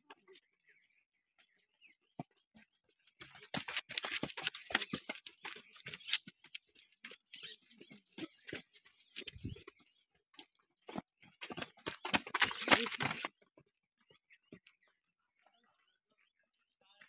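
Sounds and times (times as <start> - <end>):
footsteps on concrete steps: 3.2 - 13.7.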